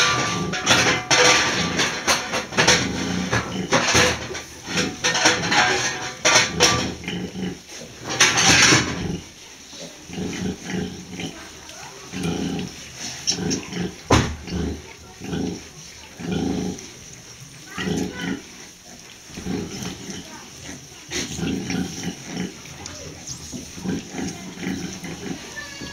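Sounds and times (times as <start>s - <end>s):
sow grunting: 6.3s - 17.0s, 17.6s - 25.9s.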